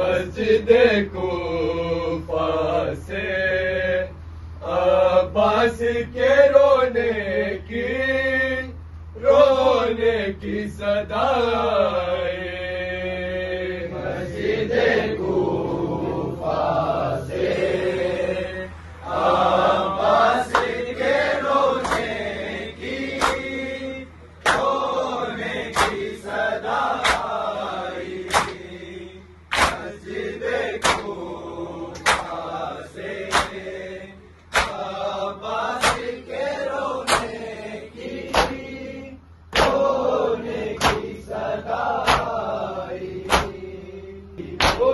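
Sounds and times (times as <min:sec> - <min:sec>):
men chanting a lament: 0:00.0 - 0:44.9
hands slapping chests: 0:23.2 - 0:23.5, 0:24.4 - 0:24.7, 0:25.7 - 0:26.0, 0:27.0 - 0:27.3, 0:28.3 - 0:28.6, 0:29.5 - 0:29.9, 0:30.8 - 0:31.1, 0:32.0 - 0:32.4, 0:33.3 - 0:33.6, 0:34.5 - 0:34.8, 0:35.8 - 0:36.1, 0:37.1 - 0:37.4, 0:39.6 - 0:39.8, 0:40.8 - 0:41.1, 0:42.0 - 0:42.4, 0:43.3 - 0:43.6, 0:44.6 - 0:44.9.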